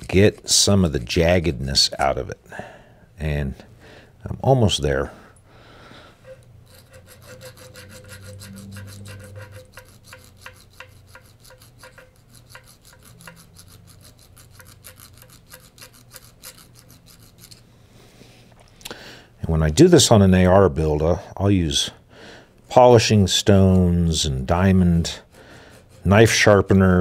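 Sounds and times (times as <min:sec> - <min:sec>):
hand file rasping on metal: 0:00.0 - 0:01.6, 0:06.2 - 0:17.7, 0:23.4 - 0:27.0.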